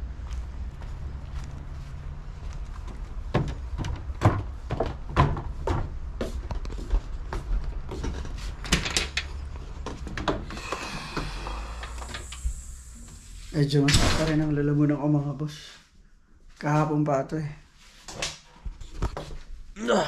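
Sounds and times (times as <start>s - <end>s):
footsteps on wooden stairs: 0.2s - 8.6s.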